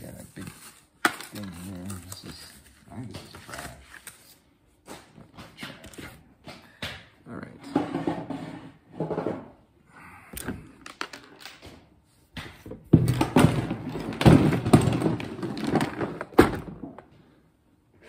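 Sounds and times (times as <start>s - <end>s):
toy tires rattling in plastic bin: 12.9s - 17.1s.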